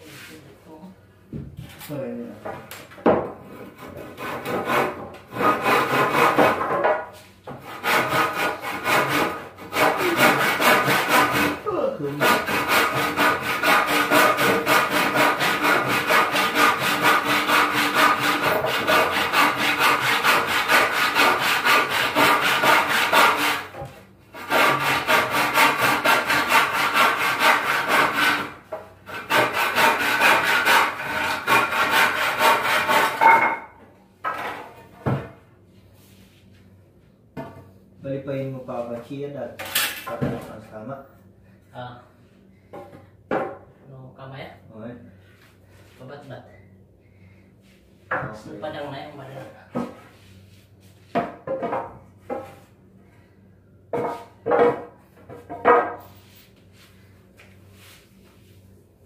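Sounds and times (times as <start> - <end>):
saw cutting wood: 3.6 - 6.6, 7.6 - 23.8, 24.4 - 33.3.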